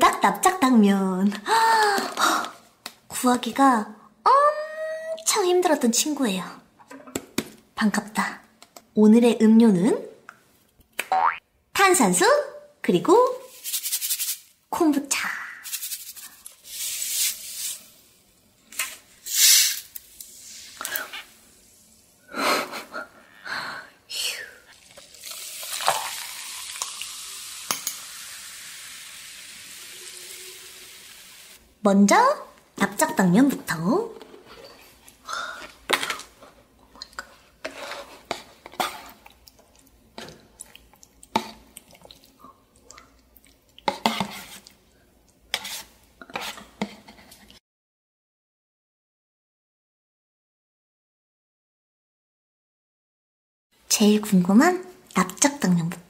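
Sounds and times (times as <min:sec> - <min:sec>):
bottle cap hissing gas: 0:19.2 - 0:21.1
drink fizzing: 0:24.7 - 0:31.6
chopsticks scraping paper cup: 0:43.9 - 0:44.7, 0:45.5 - 0:47.5.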